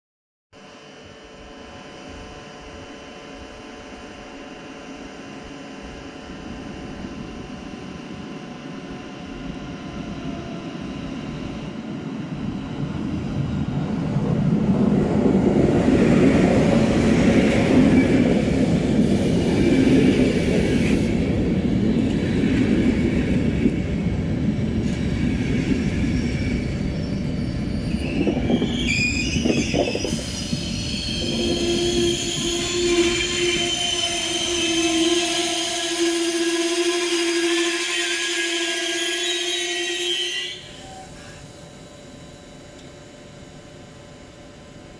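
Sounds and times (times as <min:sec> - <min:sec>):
train rolling rumble: 0:01.1 - 0:36.8
metallic brake squealing: 0:26.2 - 0:36.0.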